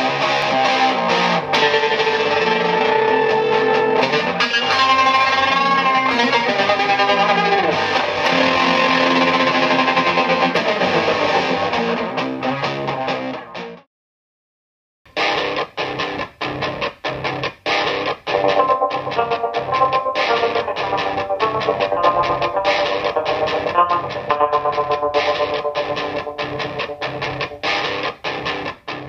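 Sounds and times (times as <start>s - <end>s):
fuzzy electric guitar with tremolo: 0.0s - 13.8s, 15.2s - 29.0s.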